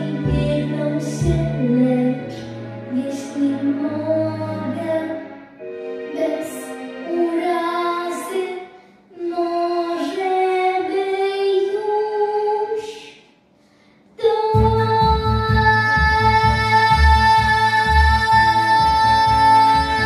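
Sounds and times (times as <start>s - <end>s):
girl singing into a microphone: 6.4s - 13.1s, 14.2s - 20.0s.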